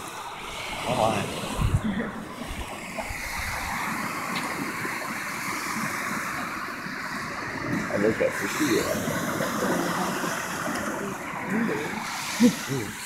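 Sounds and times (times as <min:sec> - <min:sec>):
ocean surf breaking: 0:00.0 - 0:13.0
low rumbles on microphone: 0:00.4 - 0:04.7.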